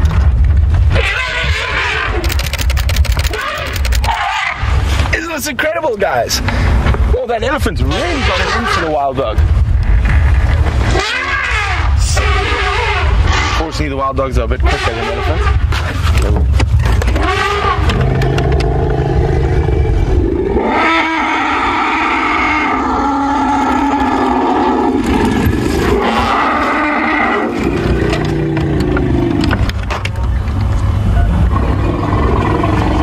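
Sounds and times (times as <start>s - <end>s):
elephants trumpeting and screaming: 0.8s - 4.9s, 7.8s - 9.2s, 10.1s - 14.0s, 14.6s - 29.7s
low engine rumble: 27.4s - 33.0s.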